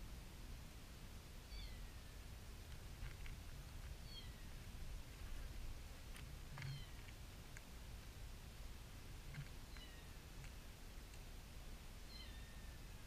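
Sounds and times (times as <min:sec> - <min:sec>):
small clicks: 0:09.3 - 0:11.3.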